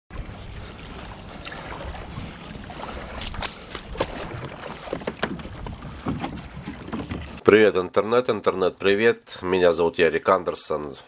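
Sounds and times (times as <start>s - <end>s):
paddle splashing in water: 0.1s - 7.5s
paddle knocking against hull: 2.7s - 7.4s.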